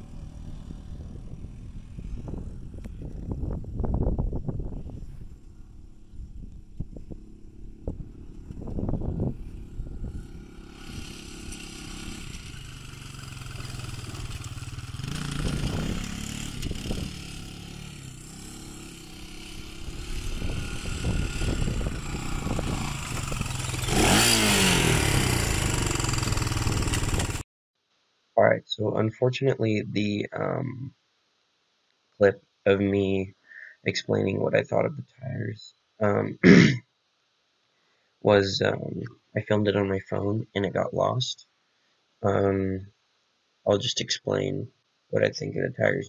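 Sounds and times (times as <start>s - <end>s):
quad bike engine revving: 0.0s - 3.4s, 5.7s - 27.4s.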